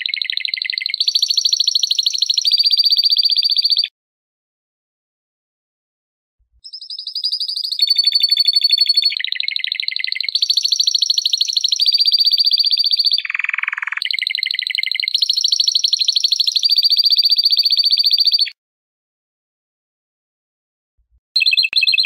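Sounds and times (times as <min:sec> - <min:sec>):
canary singing trills: 0:00.0 - 0:03.9, 0:06.6 - 0:18.6, 0:21.4 - 0:22.0.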